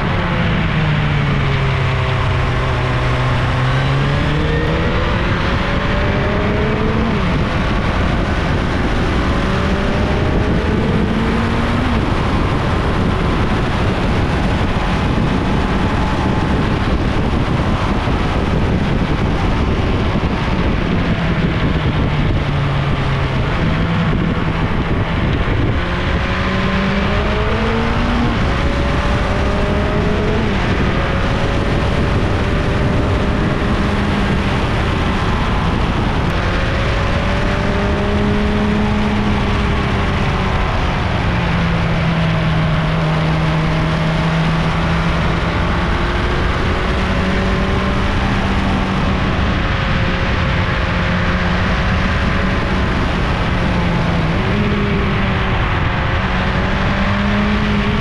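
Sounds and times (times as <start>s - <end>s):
motorcycle engine shifting gears: 0.0s - 58.0s
rushing noise: 0.0s - 58.0s.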